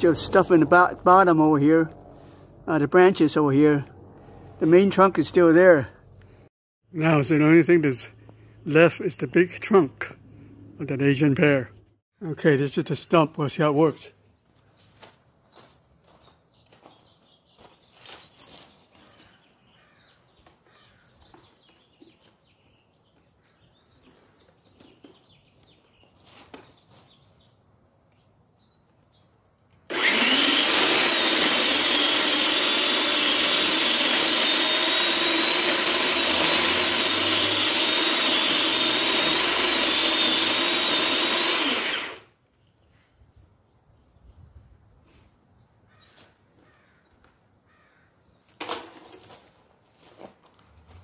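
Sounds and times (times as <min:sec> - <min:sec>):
electric saw cutting wood: 0:29.9 - 0:42.4.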